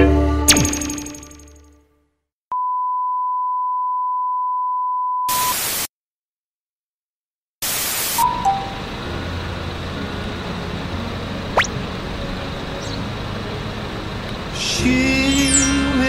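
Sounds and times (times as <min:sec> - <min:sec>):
steady test-tone beep: 0:00.5 - 0:01.3
short beep: 0:02.5 - 0:05.6
tv static hiss: 0:05.3 - 0:05.9, 0:07.6 - 0:14.6.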